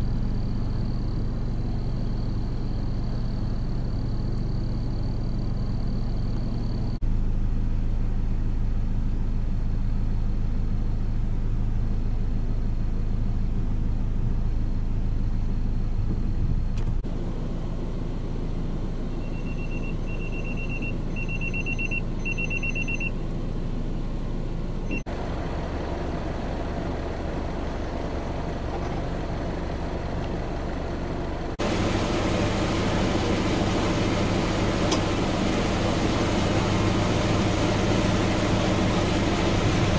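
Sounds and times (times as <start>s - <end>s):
road-side background noise: 0.0s - 39.9s
vehicle engine humming: 0.0s - 39.9s
short high electronic beeps: 19.2s - 23.1s.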